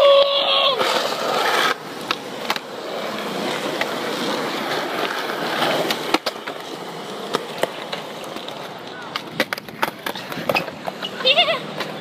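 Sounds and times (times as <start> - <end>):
skateboard wheels rolling on concrete: 0.0 - 12.0
skateboard clacking on ledge: 4.9 - 12.0.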